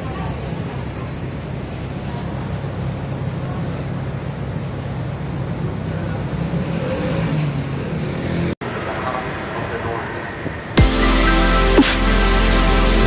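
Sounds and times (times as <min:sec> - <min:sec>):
faint voices: 0:00.0 - 0:07.0
road traffic rumble: 0:00.0 - 0:13.0.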